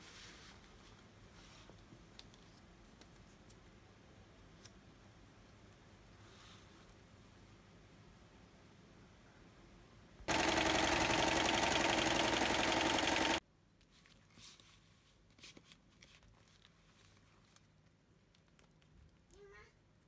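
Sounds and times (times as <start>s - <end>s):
electric sewing machine stitching: 10.3s - 13.4s.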